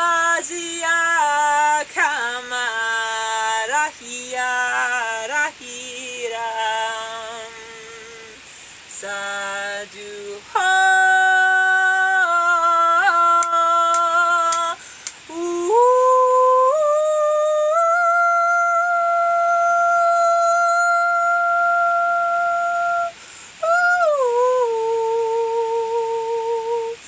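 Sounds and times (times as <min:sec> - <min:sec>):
woman humming: 0:10.6 - 0:27.0.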